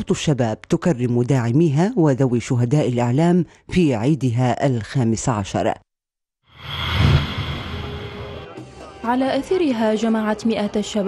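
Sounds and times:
whoosh: 6.5 - 8.6
news sting music: 6.6 - 9.3.

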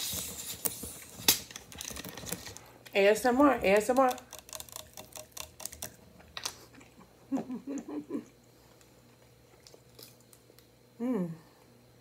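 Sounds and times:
person humming: 11.0 - 11.6.

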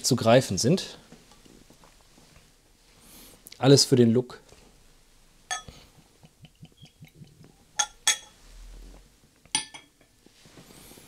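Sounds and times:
glass clinks: 5.5 - 5.8, 7.8 - 8.4, 9.5 - 10.1.

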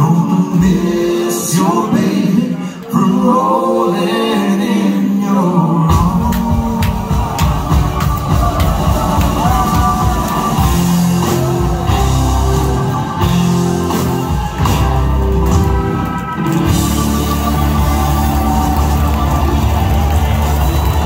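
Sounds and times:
live rock band playing: 5.9 - 21.0.

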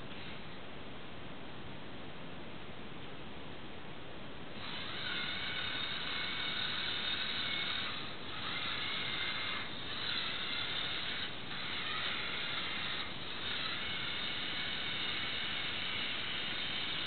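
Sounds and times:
small electric motor whining: 4.6 - 17.0.

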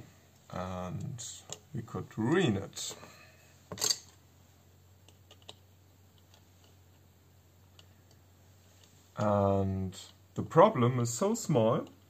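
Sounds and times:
faint light clicks of small parts: 5.0 - 10.2, 11.7 - 12.0.

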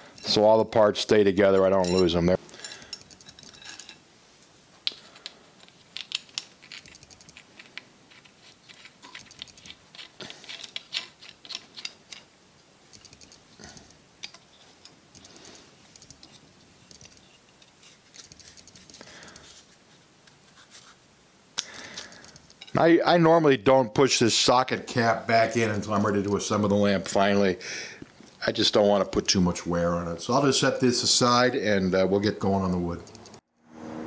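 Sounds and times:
small brass parts clinking: 1.6 - 4.0.

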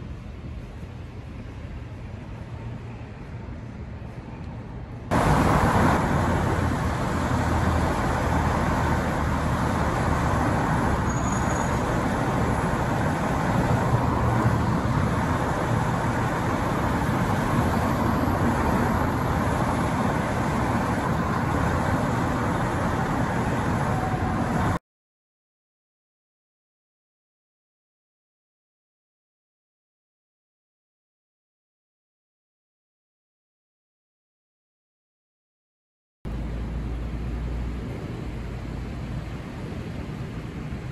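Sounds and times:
fire trucks idling: 5.1 - 24.8.

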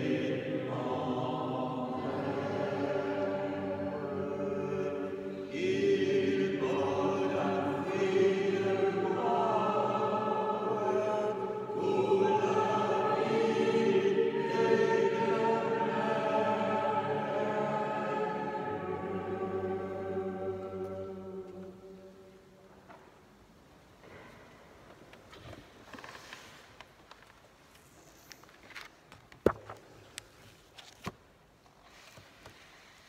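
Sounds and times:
choir chanting: 0.0 - 22.4.

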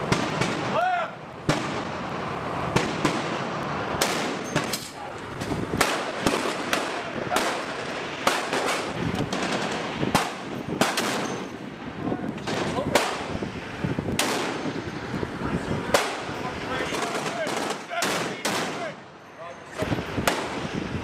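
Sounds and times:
rifle shots: 1.4 - 1.9, 2.7 - 5.0, 5.8 - 11.5, 12.4 - 13.3, 14.2 - 14.8, 15.9 - 16.3, 16.9 - 19.0, 20.2 - 20.8.

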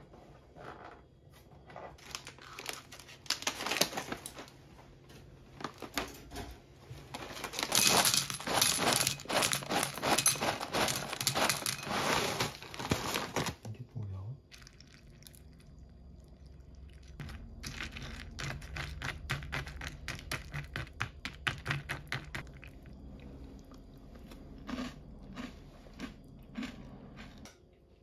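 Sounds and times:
foil bag crinkling: 2.0 - 4.6, 7.1 - 13.6
cereal pouring into ceramic bowl: 7.6 - 13.3.

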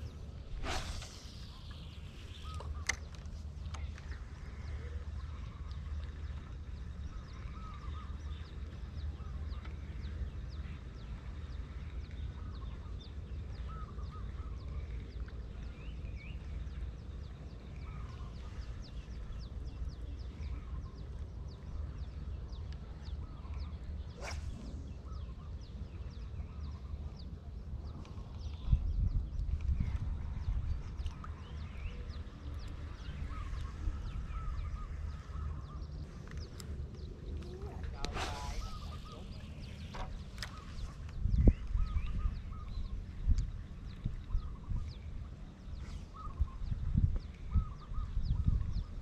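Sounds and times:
birds chirping and calling: 0.0 - 49.0
low wind rumble on microphone: 0.0 - 49.0
falling swish: 0.6 - 1.4, 38.1 - 38.9.

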